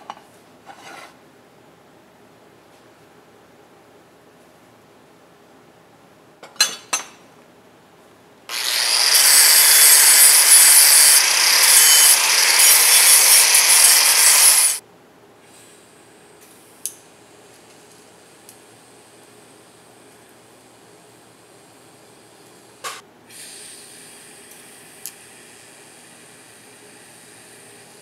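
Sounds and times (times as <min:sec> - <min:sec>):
metal grinding on grinding wheel: 0:08.5 - 0:14.8.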